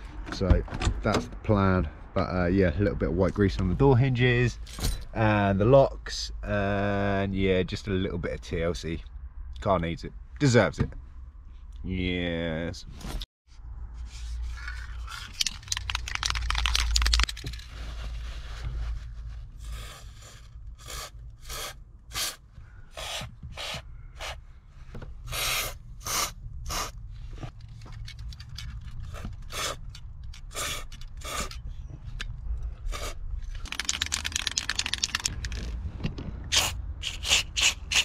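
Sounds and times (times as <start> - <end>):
aerosol can rattling: 15.3 - 17.6, 33.0 - 35.7.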